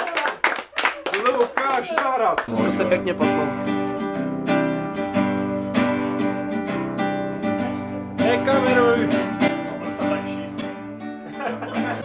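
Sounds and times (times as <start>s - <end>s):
acoustic guitar strumming chords: 2.5s - 12.0s.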